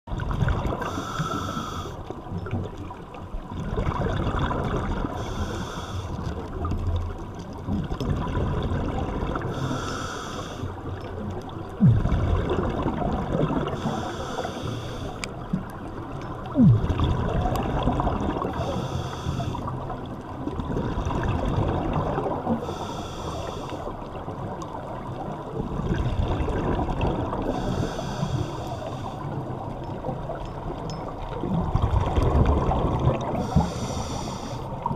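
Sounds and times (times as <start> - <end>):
exhaled bubbles rushing: 0.1 - 0.9, 3.5 - 5.2, 7.7 - 9.5, 11.6 - 13.8, 16.4 - 18.6, 20.4 - 22.6, 24.4 - 27.6, 31.3 - 33.5
underwater bubbling rumble: 0.1 - 34.9.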